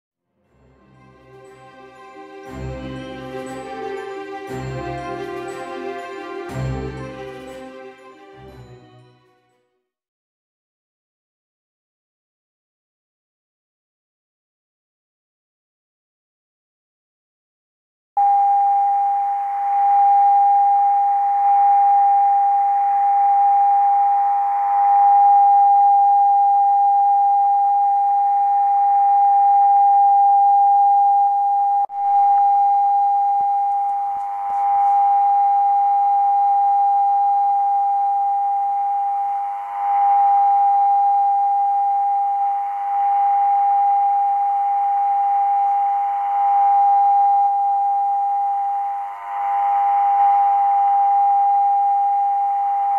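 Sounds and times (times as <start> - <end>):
steady whistle-like radio tone: 18.2 - 52.9.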